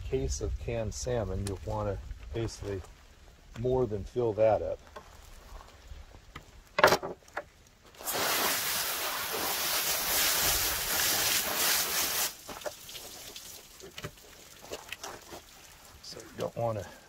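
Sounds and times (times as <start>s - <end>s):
hose nozzle spraying water: 8.0s - 16.7s.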